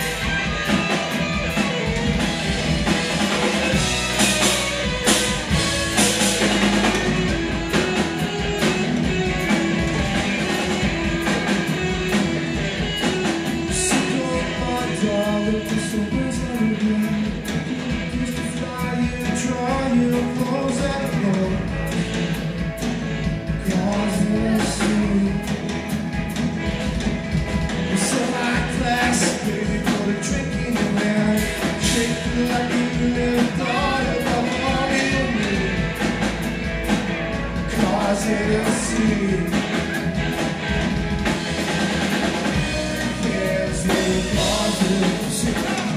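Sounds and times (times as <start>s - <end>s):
drum and cymbal hits: 0.0s - 45.9s
electric guitar lines: 0.0s - 45.9s
live rock band playing: 0.0s - 45.9s
person singing: 13.3s - 21.9s, 23.6s - 25.8s, 27.8s - 36.1s, 37.7s - 40.0s, 42.6s - 45.9s.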